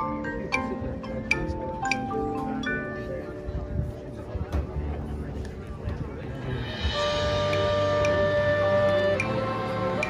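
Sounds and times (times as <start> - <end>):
mallet percussion notes ringing: 0.0 - 3.7
marching band playing: 6.5 - 10.0.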